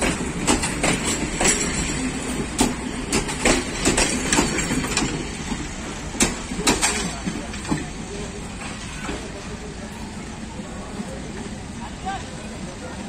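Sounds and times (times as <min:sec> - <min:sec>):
train wheels clacking over rail joints: 0:00.0 - 0:09.6
low train rumble: 0:00.0 - 0:13.0.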